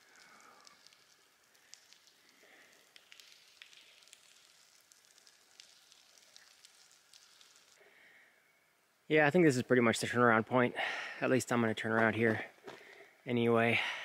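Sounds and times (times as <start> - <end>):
water drips echoing: 0.0 - 8.9.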